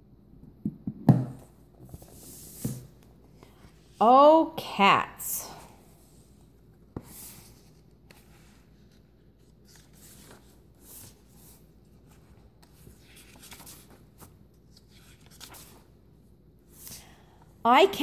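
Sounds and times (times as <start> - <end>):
book pages turning: 6.4 - 16.0.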